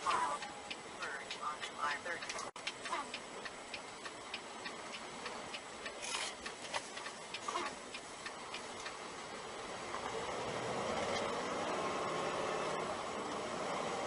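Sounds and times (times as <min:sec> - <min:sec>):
truck road noise: 0:00.0 - 0:14.0
rapid regular ticking: 0:00.1 - 0:09.9
truck engine: 0:02.5 - 0:14.0.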